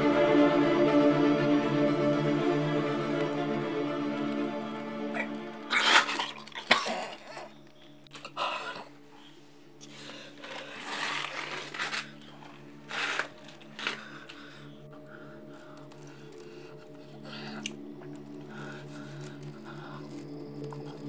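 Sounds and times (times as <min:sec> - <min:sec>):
low steady drone: 0:00.0 - 0:21.0
clothes rustling: 0:09.8 - 0:14.6.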